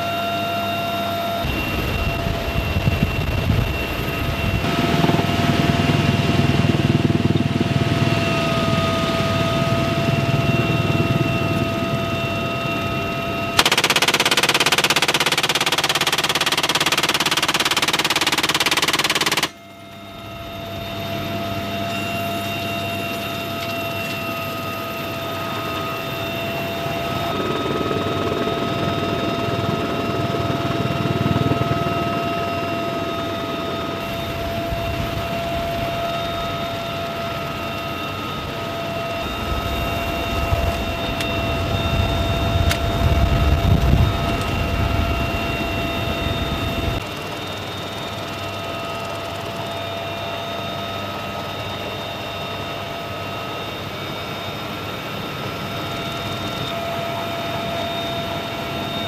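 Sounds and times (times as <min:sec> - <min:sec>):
helicopter whine and rotor rumble: 0:00.0 - 0:59.0
machine gun burst: 0:13.6 - 0:19.6.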